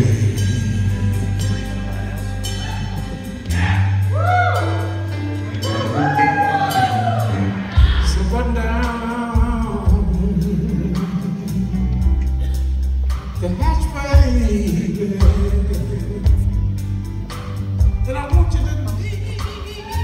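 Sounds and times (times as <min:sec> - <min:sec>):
man singing: 0:00.0 - 0:04.1, 0:05.6 - 0:12.4, 0:13.3 - 0:16.8, 0:17.8 - 0:20.0
blues band playing: 0:00.0 - 0:20.0.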